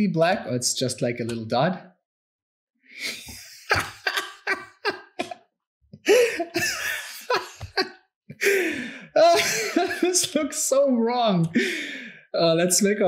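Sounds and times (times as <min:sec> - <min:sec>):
man laughing: 0:03.0 - 0:05.4, 0:06.0 - 0:10.4.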